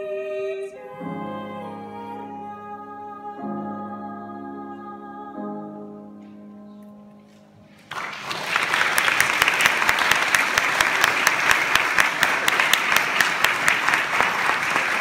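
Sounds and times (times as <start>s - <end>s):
audience applause: 7.8s - 15.0s
sharp individual claps: 7.8s - 15.0s.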